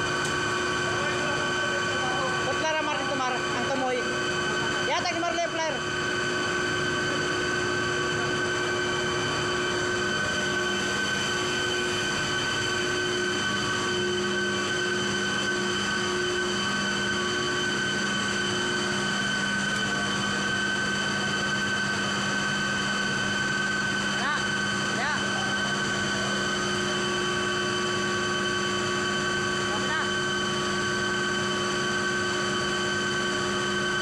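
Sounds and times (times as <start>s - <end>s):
machinery drone: 0.0s - 22.1s
whining machine tones: 0.0s - 34.0s.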